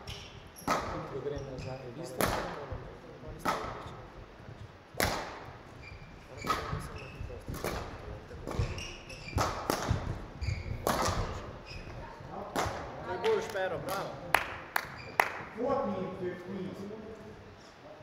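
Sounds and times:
rackets striking shuttlecock: 0.0 - 1.1, 2.2 - 2.5, 5.0 - 5.5, 6.4 - 6.8, 7.5 - 11.4
shoes squeaking: 0.0 - 2.2, 5.5 - 12.4, 14.8 - 15.3
feet thudding on court floor: 6.4 - 11.6.

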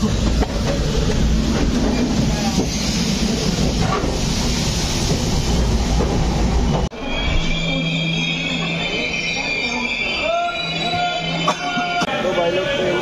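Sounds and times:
train rumble: 0.0 - 9.8
high squealing tones: 6.9 - 12.0.

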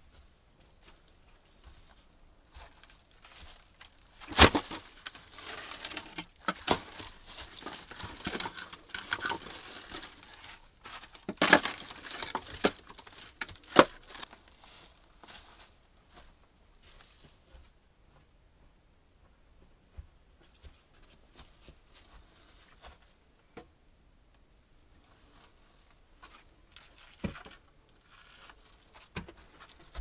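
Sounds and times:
dry leaves crunching underfoot: 2.5 - 15.8
logs being stacked: 3.3 - 15.4.

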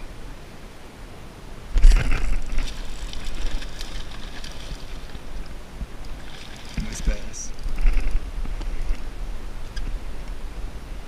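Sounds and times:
fish splashing in water: 1.8 - 5.5, 6.1 - 8.2.

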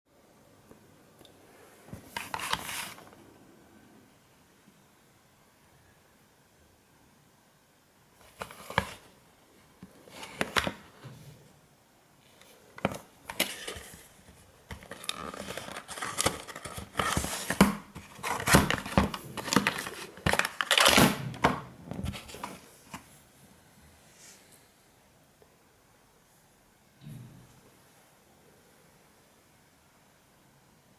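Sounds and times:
cardboard box being opened: 14.7 - 21.1.

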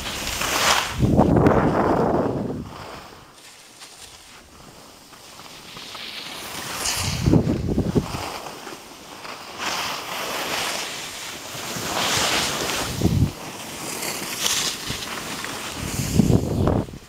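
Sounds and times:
skis scraping over snow: 0.0 - 17.0
wind buffeting microphone: 0.8 - 3.3, 6.9 - 8.3, 12.8 - 13.4, 15.7 - 17.0.

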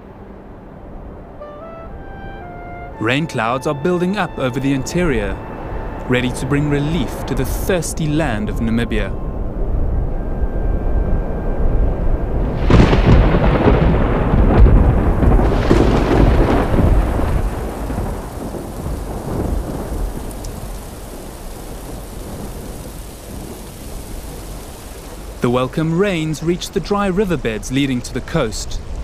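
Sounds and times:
steady rain: 0.0 - 29.0
thunder rumbling: 1.3 - 29.0
thunder crack: 10.8 - 26.6.

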